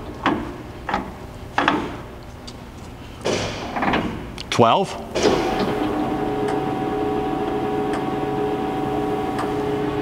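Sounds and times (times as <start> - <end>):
machine gearbox humming: 5.1 - 10.0.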